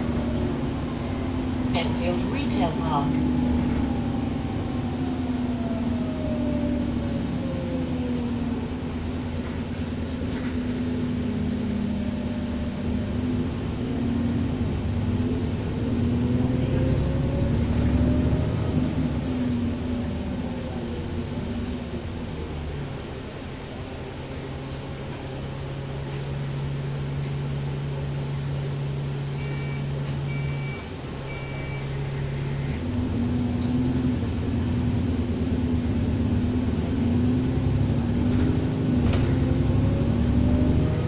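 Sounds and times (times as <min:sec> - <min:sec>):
bus engine drone: 0:00.0 - 0:41.0
squealing whine: 0:29.2 - 0:32.8.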